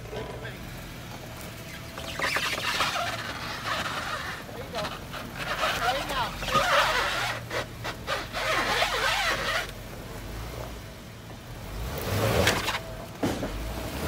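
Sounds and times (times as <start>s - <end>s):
tyres crunching roots and leaves: 0.0s - 10.6s
low engine hum: 0.0s - 14.0s.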